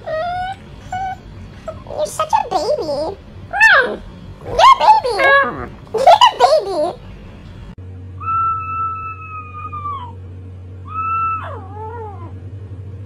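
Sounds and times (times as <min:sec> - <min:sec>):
dog howling: 0:00.0 - 0:01.8, 0:03.5 - 0:06.5, 0:08.2 - 0:10.2, 0:10.8 - 0:12.4.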